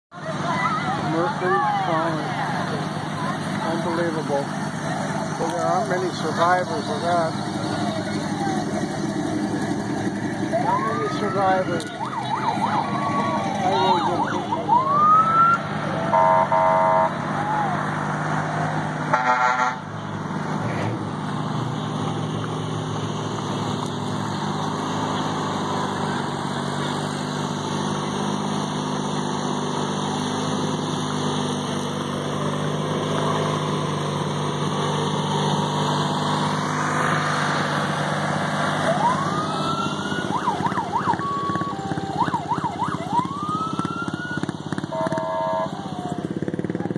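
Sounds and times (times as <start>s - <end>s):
sirens wailing: 0.1s - 20.2s, 21.9s - 46.9s
vehicle engines running: 0.1s - 46.9s
horn blast: 16.0s - 17.2s, 19.1s - 19.9s, 44.9s - 45.8s.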